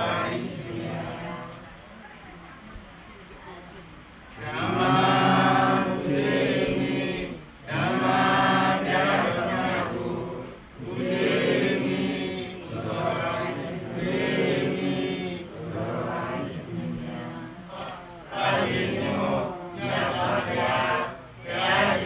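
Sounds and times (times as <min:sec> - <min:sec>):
voices chanting: 0:00.0 - 0:01.7, 0:04.3 - 0:22.0.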